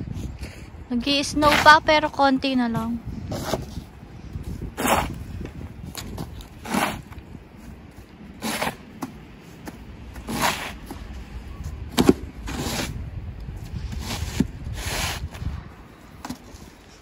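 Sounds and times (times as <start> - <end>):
snow shovels scraping snow: 1.2 - 2.2, 4.8 - 5.2, 6.5 - 7.2, 8.3 - 9.0, 10.2 - 11.0, 12.5 - 13.0, 13.8 - 15.4.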